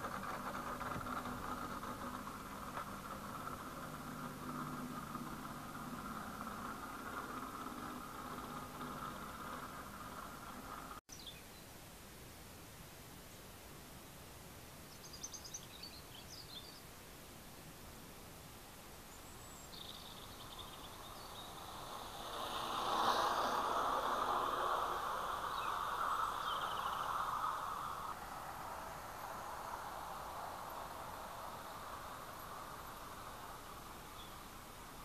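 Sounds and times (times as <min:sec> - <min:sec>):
model train running on track: 0:00.0 - 0:11.0, 0:19.6 - 0:35.0
bird chirps: 0:14.9 - 0:16.8, 0:19.1 - 0:22.4, 0:25.4 - 0:28.0.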